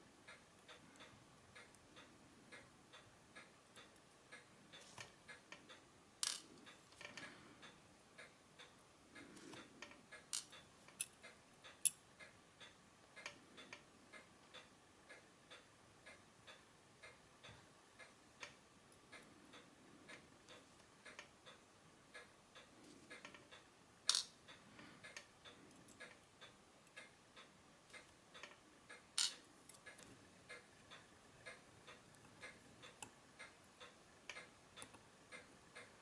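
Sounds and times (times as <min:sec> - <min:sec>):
watch ticking: 0:00.1 - 0:36.0
small tools clicking on metal: 0:29.2 - 0:30.1.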